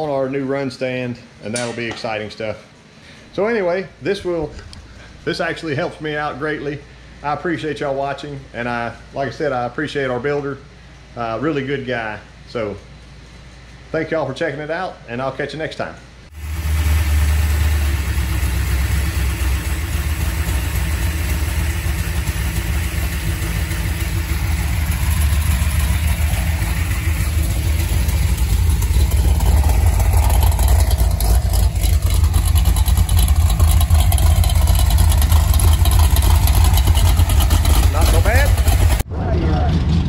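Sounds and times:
engine running steadily: 0:16.3 - 0:40.0.

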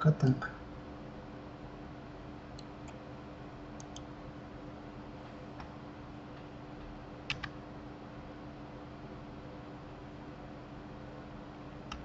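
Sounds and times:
computer clicks: 0:03.8 - 0:04.1, 0:07.3 - 0:07.6.

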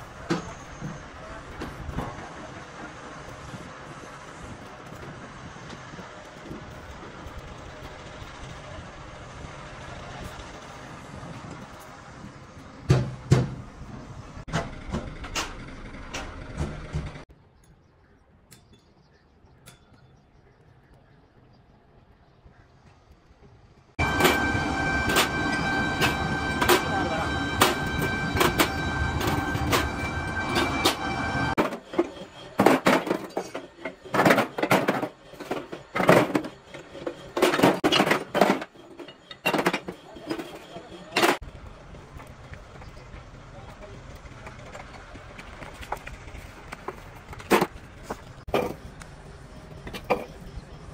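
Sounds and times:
metal clanking and knocking: 0:12.8 - 0:17.2, 0:24.0 - 0:41.4
steady machine hum: 0:24.0 - 0:32.7.

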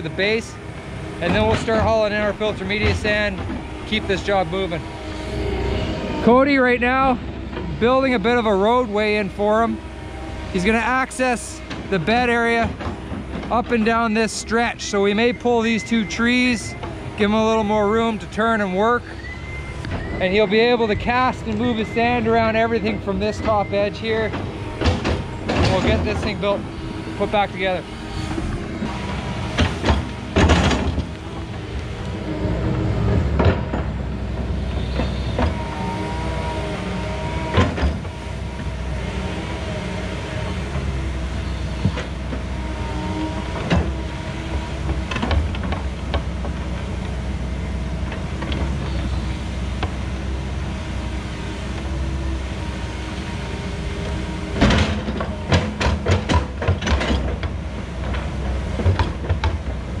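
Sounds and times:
excavator diesel engine under load: 0:00.0 - 1:00.0
hydraulics whining: 0:00.0 - 1:00.0
metal clanks: 0:23.3 - 0:27.7, 0:28.3 - 0:31.6.

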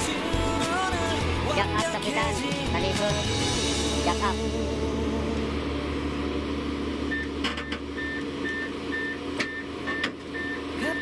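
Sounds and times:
excavator diesel engine under load: 0:00.0 - 0:11.0
travel alarm beeping: 0:07.1 - 0:11.0.

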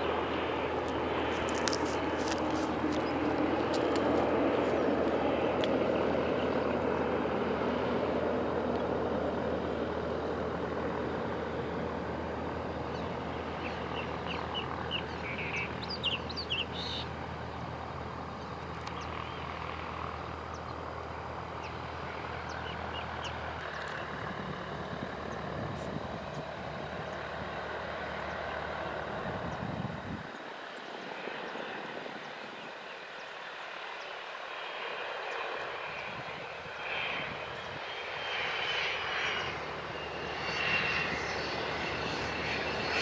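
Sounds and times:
birds chirping: 0:00.0 - 0:08.1, 0:12.5 - 0:29.7
jet engines passing overhead: 0:00.0 - 0:43.0.

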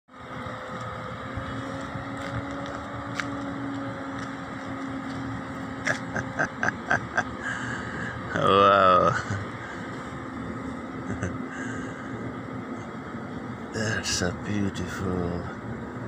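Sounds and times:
low mechanical hum: 0:00.1 - 0:16.0.

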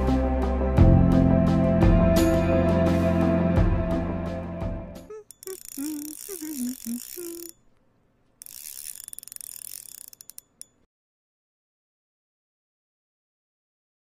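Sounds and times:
wavering pitch glides: 0:05.1 - 0:07.5.

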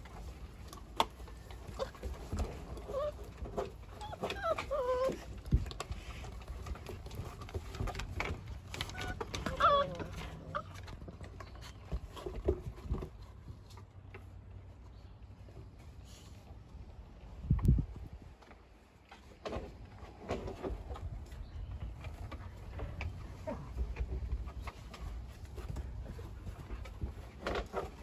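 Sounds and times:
paws clicking on wooden deck: 0:00.0 - 0:15.9, 0:18.4 - 0:28.0
puppies yipping: 0:01.6 - 0:05.4, 0:08.8 - 0:10.9.

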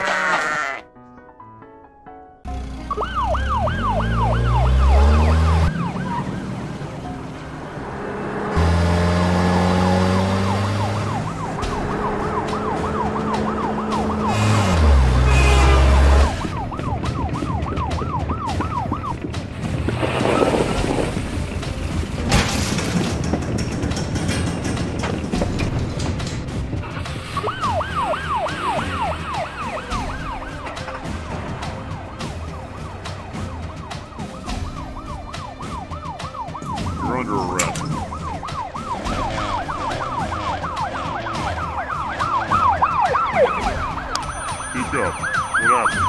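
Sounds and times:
police siren yelping: 0:02.9 - 0:06.6, 0:10.4 - 0:19.3, 0:27.0 - 0:46.0.

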